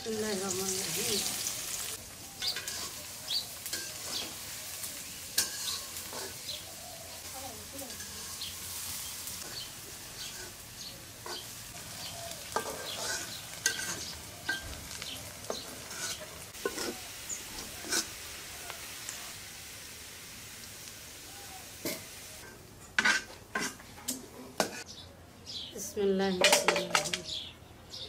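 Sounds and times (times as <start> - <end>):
sizzling in a pot: 0.0 - 24.9.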